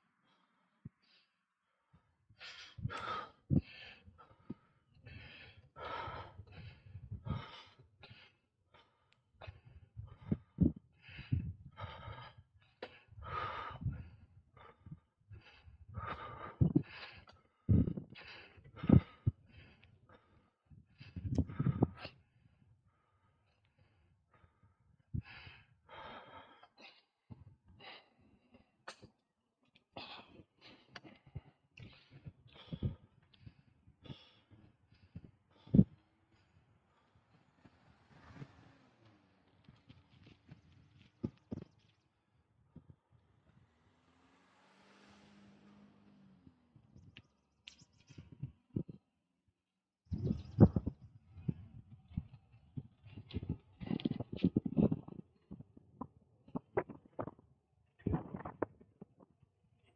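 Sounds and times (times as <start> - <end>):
heavy rapid breathing: 0.2 - 42.0
person panting hard: 2.4 - 29.2, 30.0 - 39.2.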